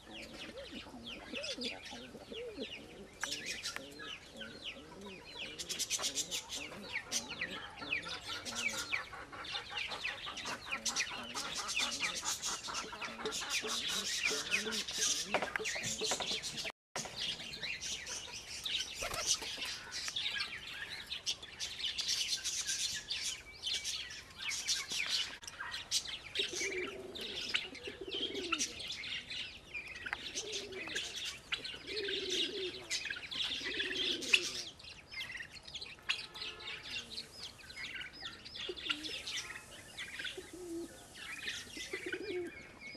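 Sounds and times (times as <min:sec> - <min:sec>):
pigeons cooing: 0:00.0 - 0:21.8, 0:25.2 - 0:35.4, 0:36.1 - 0:42.9
birds chirping: 0:00.0 - 0:42.9.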